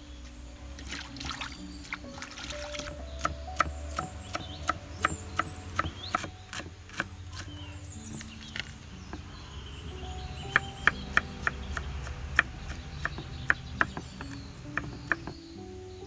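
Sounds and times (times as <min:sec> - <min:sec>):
knife chopping on wooden board: 0:03.2 - 0:09.3, 0:10.5 - 0:15.4.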